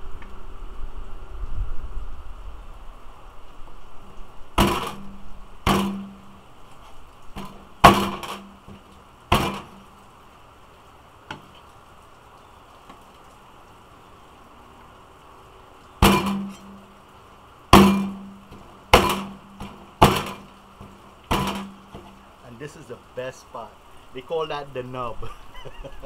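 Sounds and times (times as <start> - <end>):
rain hiss: 0.0 - 26.0.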